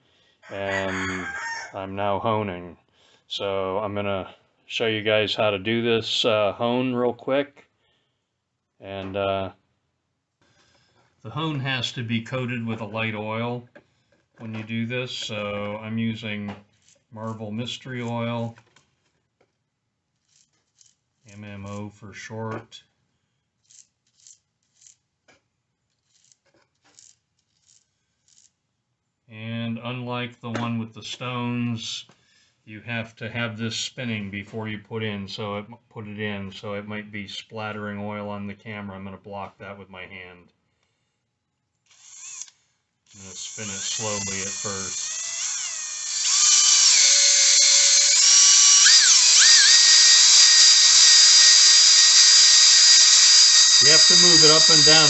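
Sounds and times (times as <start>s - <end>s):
cordless drill motor whine: 41.9s - 55.0s
dense hiss of honing: 46.2s - 55.0s.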